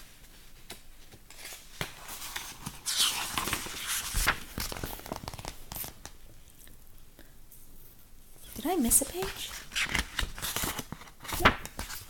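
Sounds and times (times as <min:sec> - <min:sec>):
book pages turning: 0:00.2 - 0:06.2, 0:09.0 - 0:12.0.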